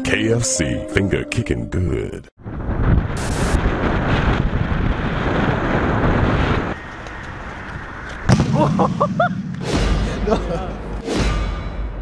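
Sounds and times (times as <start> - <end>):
rumbling glitch noise: 2.4 - 9.0
sharp hit: 8.3 - 12.0.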